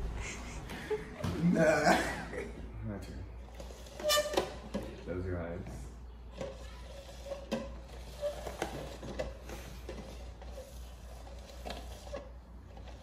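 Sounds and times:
plastic cups sliding on glass: 3.4s - 5.1s, 6.3s - 13.0s.

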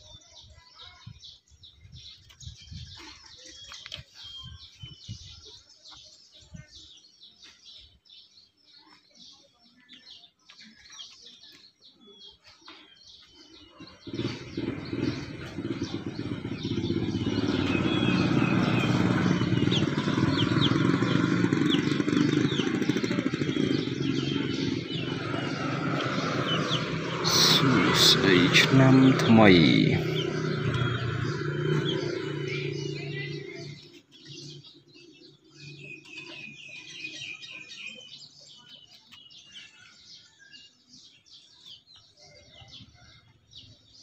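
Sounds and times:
birds chirping: 0.0s - 44.0s
engine running: 13.9s - 37.0s.

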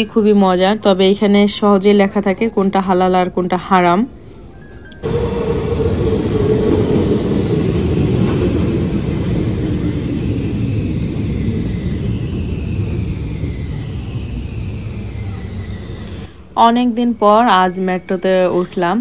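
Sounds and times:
train whine dropping in pitch: 4.6s - 18.5s
train wheels rumbling on rails: 5.0s - 16.6s.

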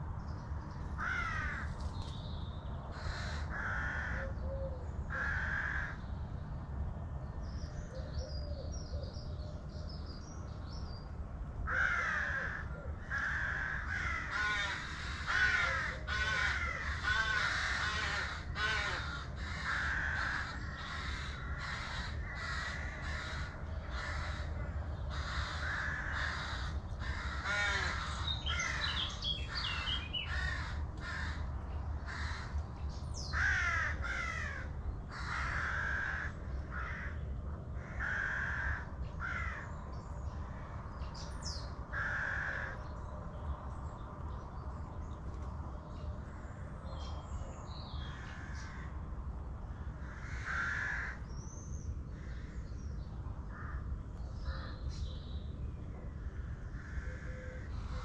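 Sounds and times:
crows calling harshly: 1.0s - 1.8s, 2.9s - 4.4s, 5.1s - 6.0s, 11.6s - 32.6s, 33.2s - 39.7s, 41.9s - 42.9s, 48.0s - 49.0s, 49.8s - 51.3s, 53.4s - 54.8s, 56.4s - 58.0s
songbird twittering: 27.7s - 30.6s.

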